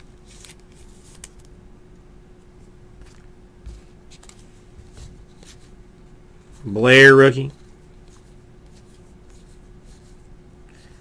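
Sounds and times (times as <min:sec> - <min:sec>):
faint steady hum: 0:00.0 - 0:11.0
trading cards flipping: 0:00.2 - 0:01.5, 0:03.0 - 0:05.7.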